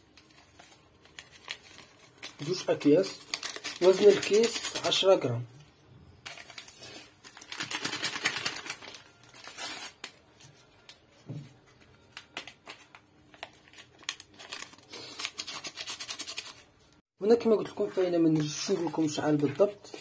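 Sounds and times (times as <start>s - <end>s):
paper sachets crinkling: 0.0s - 5.2s, 6.3s - 10.9s, 12.0s - 16.7s, 18.2s - 20.0s
paper sachet tearing: 0.2s - 5.1s, 6.3s - 10.2s, 13.3s - 16.7s.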